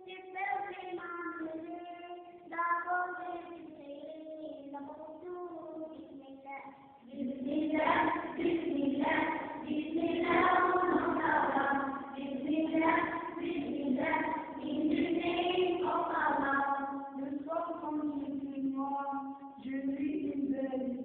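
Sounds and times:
children's choir singing: 7.0s - 20.1s.

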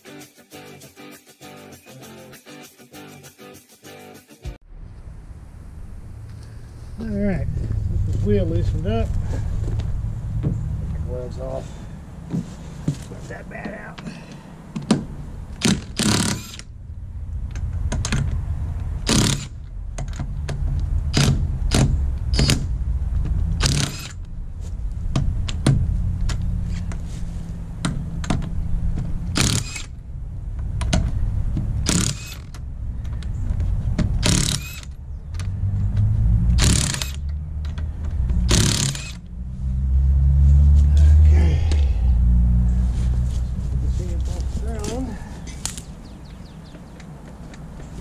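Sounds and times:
sharp clicks: 14.8s - 16.7s, 17.4s - 22.7s, 23.3s - 24.3s, 27.8s - 30.0s, 30.6s - 39.3s
impact wrench spinning lug nuts: 14.9s - 24.3s, 27.8s - 30.0s, 30.6s - 35.5s, 36.5s - 39.3s.

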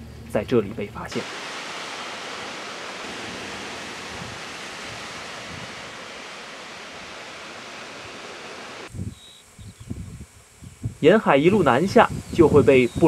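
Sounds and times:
wind: 0.0s - 13.0s
small waves breaking on sand: 1.1s - 8.9s.

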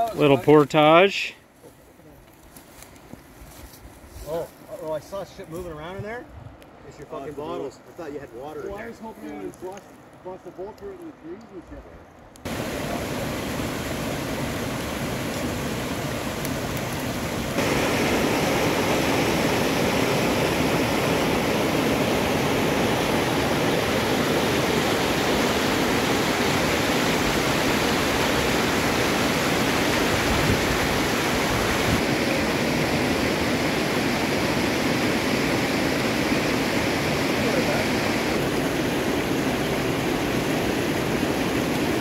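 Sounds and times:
river rapids rushing over rocks: 12.5s - 42.0s.

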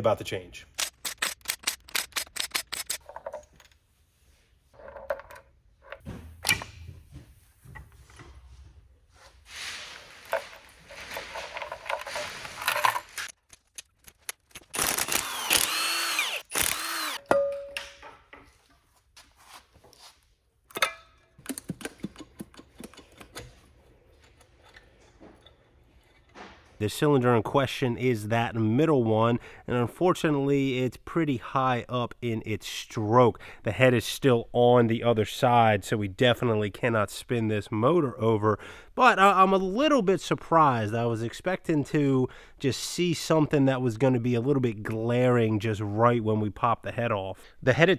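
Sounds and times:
metal engine parts handled: 10.3s - 14.7s
impact driver clicking: 14.7s - 17.2s
sharp ringing metal clank: 17.3s - 17.8s.

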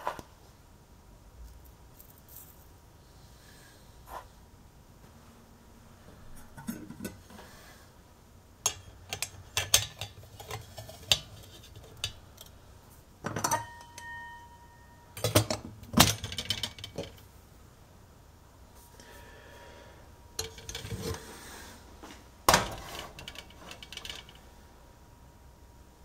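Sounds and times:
lid clattering: 6.4s - 7.2s, 8.7s - 12.2s, 13.2s - 14.4s, 15.2s - 17.2s, 20.4s - 21.3s, 22.5s - 24.4s
short metallic ring: 13.4s - 15.2s.

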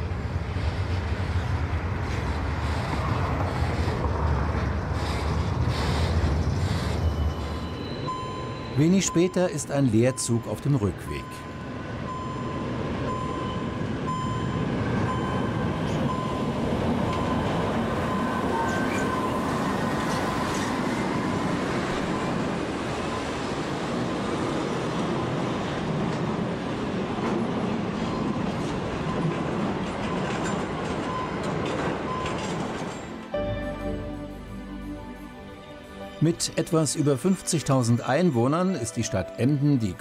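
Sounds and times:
diesel locomotive rumbling: 0.0s - 39.4s.

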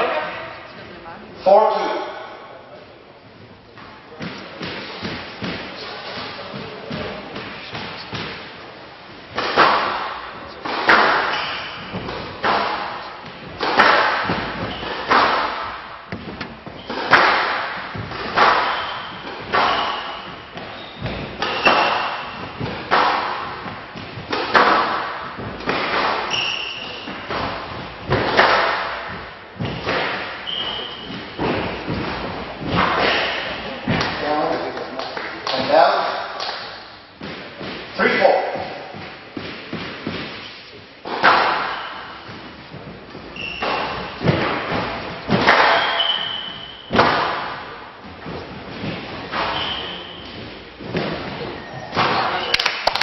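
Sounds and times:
squash ball hitting rackets and walls: 3.7s - 52.9s
shoes squeaking on court floor: 9.5s - 24.6s, 25.2s - 28.4s, 29.0s - 33.6s, 41.6s - 47.0s, 48.3s - 52.6s.

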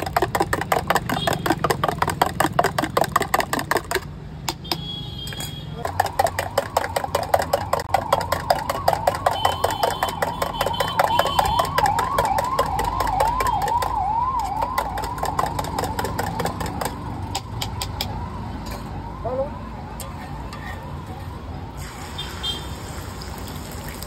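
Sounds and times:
spoon whisking in a steel mug: 5.8s - 13.8s.

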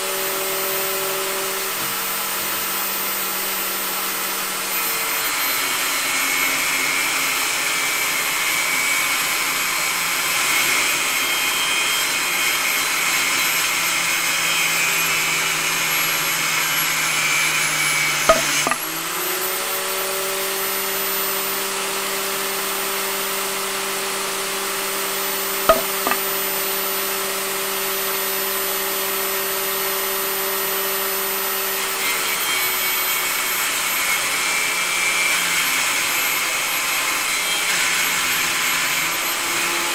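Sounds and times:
saw cutting through wood: 0.0s - 39.9s
sharp click: 25.7s - 26.2s.

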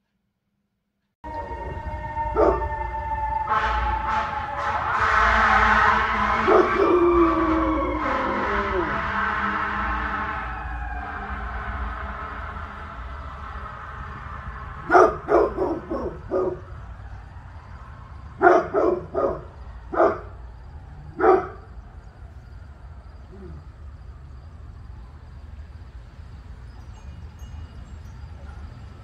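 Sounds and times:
dog barking: 2.4s - 2.7s, 14.8s - 16.7s, 18.4s - 20.4s, 21.1s - 21.7s.

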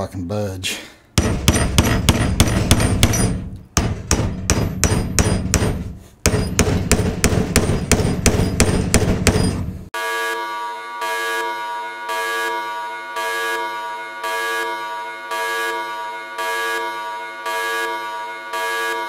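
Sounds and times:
hammer striking metal punch: 1.2s - 9.8s.

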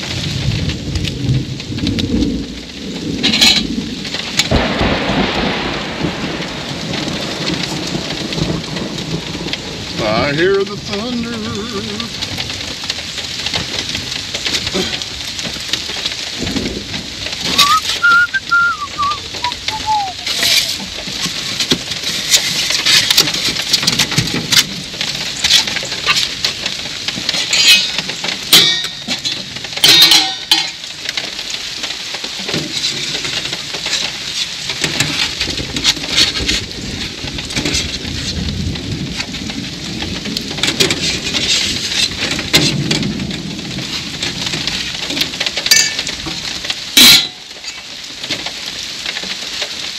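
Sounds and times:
rain pattering on vehicle: 0.0s - 49.9s
bird whistled call: 17.5s - 20.7s
foam containers and utensils clattering: 19.8s - 24.7s, 27.3s - 30.8s, 45.6s - 46.1s, 47.0s - 47.9s.

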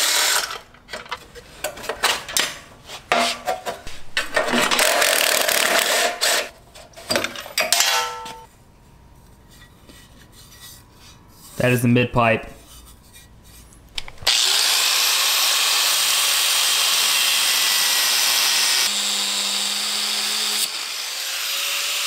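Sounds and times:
cordless power driver running: 14.2s - 21.9s.

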